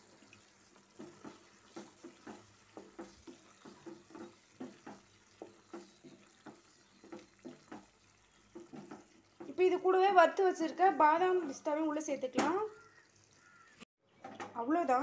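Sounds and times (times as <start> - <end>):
faint sizzle of boiling milk: 0.0 - 13.8
spatula scraping a pan: 0.5 - 9.5.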